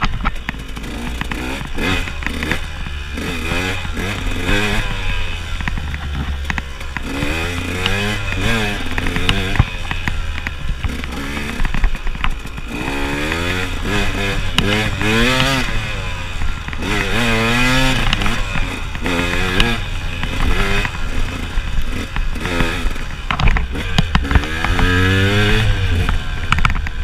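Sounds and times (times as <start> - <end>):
bike knocks and clatter: 0.0 - 27.0
motorcycle engine revving: 0.0 - 27.0.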